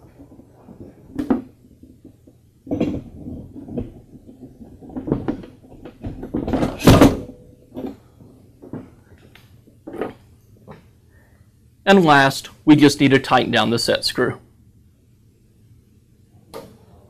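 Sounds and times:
metal clunks and scrapes: 0.1 - 9.0, 9.9 - 10.9.

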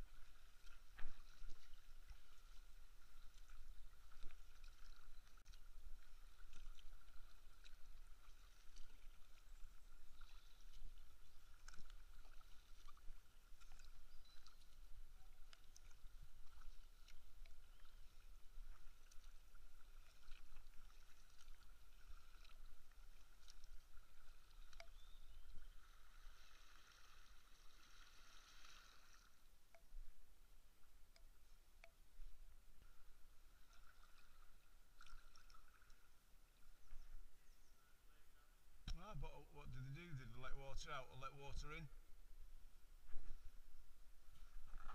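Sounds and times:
water dripping and trickling: 0.0 - 29.9, 33.6 - 36.1
kayak paddle strokes in water: 0.0 - 37.2, 43.0 - 44.9.

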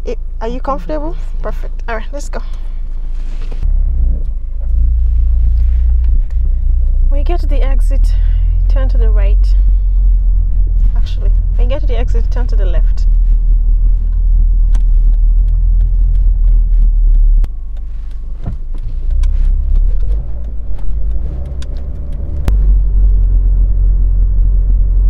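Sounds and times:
car cabin road rumble: 0.0 - 25.0
sharp clicks: 14.1 - 22.6.

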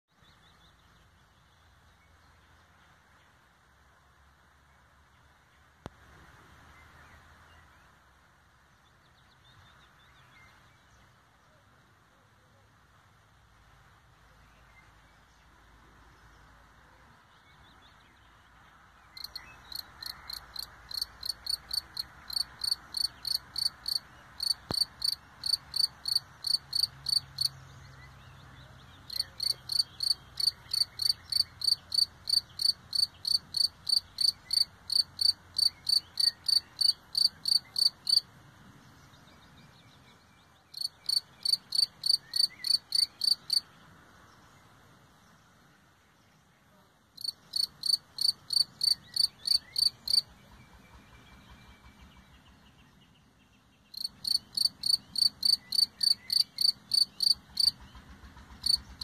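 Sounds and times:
cricket chirping: 19.2 - 27.5, 29.1 - 38.2, 40.8 - 43.6, 47.2 - 50.2, 53.9 - 57.8, 58.6 - 58.9.

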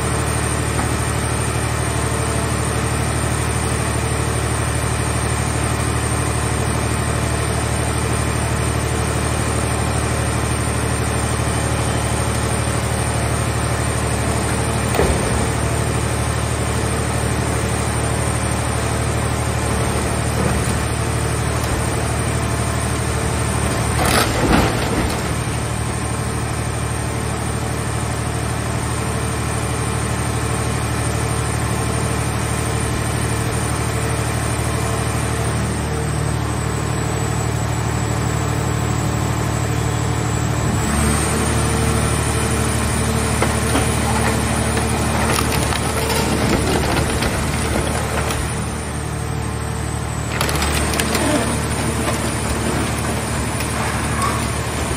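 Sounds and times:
hydraulic power unit running: 0.0 - 54.9
metal crunching: 18.7 - 26.2, 42.7 - 49.2, 49.8 - 54.9.

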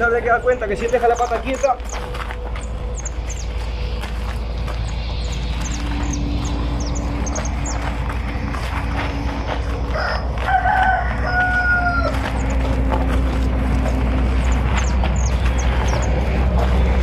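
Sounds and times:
steady low rumble: 0.0 - 17.0
rooster crowing: 9.6 - 13.6.

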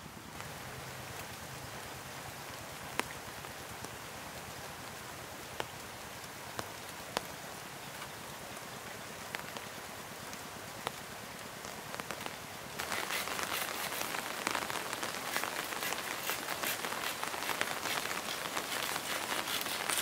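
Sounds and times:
steady rain falling: 0.0 - 20.0.

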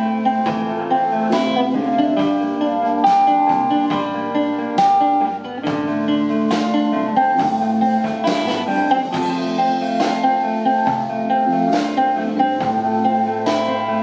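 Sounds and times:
bass line: 0.0 - 14.0
drum and cymbal strikes: 0.0 - 14.0
electric guitar notes: 0.0 - 14.0.

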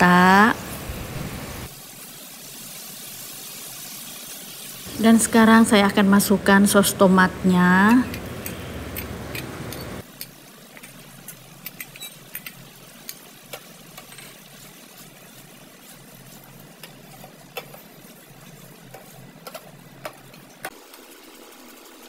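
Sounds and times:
sauce sizzling in a pan: 0.1 - 7.6, 10.0 - 22.0
wooden spatula stirring: 13.9 - 20.7.

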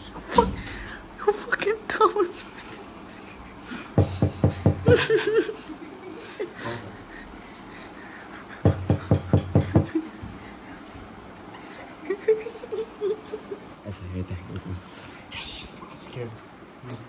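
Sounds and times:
person laughing: 4.8 - 7.0, 8.2 - 10.6, 11.7 - 13.7.

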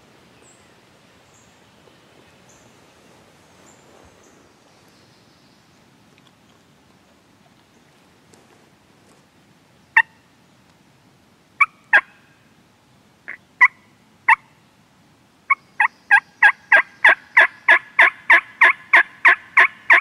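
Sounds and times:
turkey call clucks: 11.6 - 12.2, 13.3 - 14.5, 15.5 - 20.0
turkey call yelps: 11.6 - 12.2, 15.5 - 20.0.

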